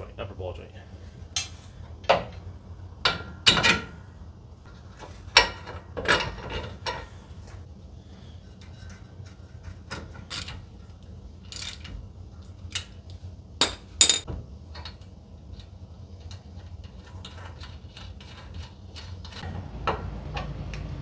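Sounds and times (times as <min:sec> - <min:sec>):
tools and metal parts clinking: 0:08.6 - 0:19.5.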